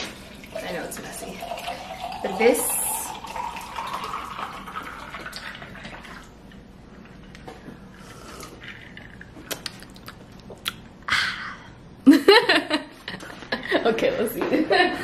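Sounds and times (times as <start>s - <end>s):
liquid pouring into a jar: 0.0s - 6.4s.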